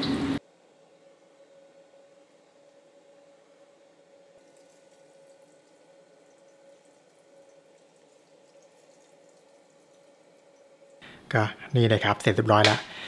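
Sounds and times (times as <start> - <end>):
steady low hum: 0.0 - 13.0
oil sizzling and crackling: 4.0 - 12.6.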